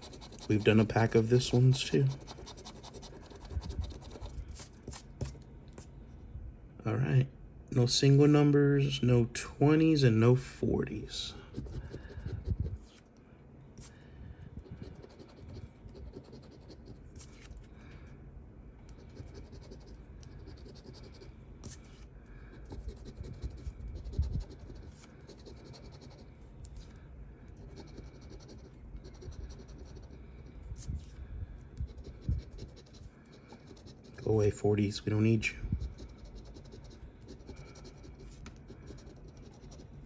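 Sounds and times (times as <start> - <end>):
scraping scratch-off ticket: 0.0 - 3.3.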